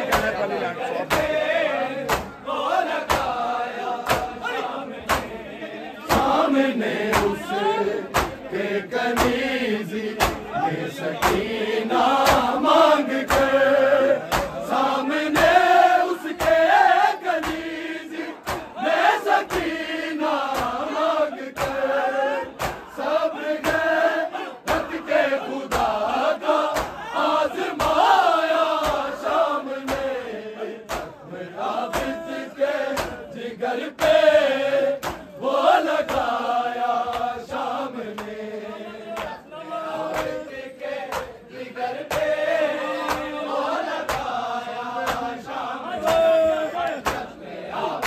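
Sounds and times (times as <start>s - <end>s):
hands slapping chests: 0.0s - 1.4s, 2.0s - 2.4s, 3.0s - 5.4s, 6.1s - 8.5s, 9.1s - 9.6s, 10.2s - 10.6s, 11.2s - 20.9s, 21.5s - 24.0s, 24.6s - 27.1s, 27.7s - 30.2s, 30.8s - 31.2s, 31.9s - 33.3s, 33.9s - 38.4s, 39.1s - 39.4s, 40.1s - 41.4s, 42.0s - 42.4s, 43.0s - 43.4s, 44.0s - 48.0s
men chanting in unison: 0.0s - 48.0s.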